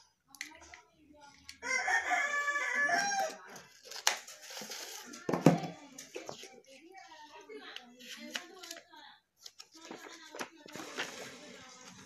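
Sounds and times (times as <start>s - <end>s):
rooster crowing: 1.6s - 3.4s.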